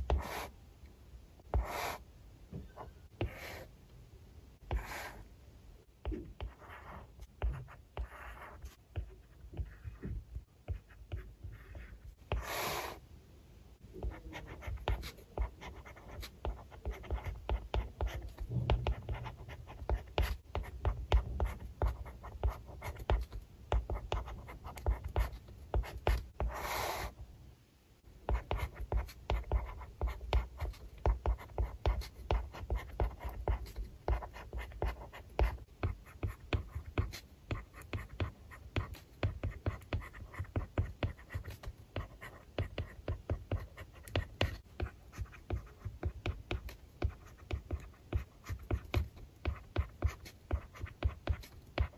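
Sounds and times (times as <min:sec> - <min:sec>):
stylus writing on glass screen: 0:00.0 - 0:00.6, 0:01.4 - 0:03.8, 0:04.6 - 0:05.2, 0:06.0 - 0:13.0, 0:13.9 - 0:27.2, 0:28.2 - 0:51.9.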